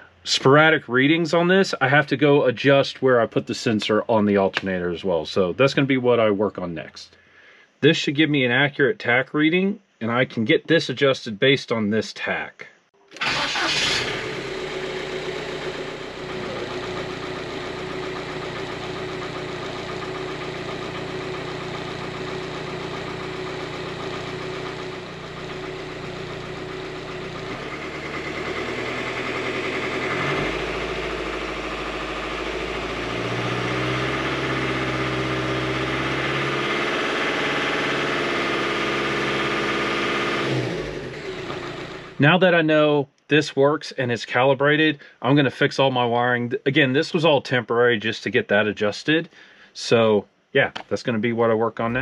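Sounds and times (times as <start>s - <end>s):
diesel engine running: 13.2s - 42.2s.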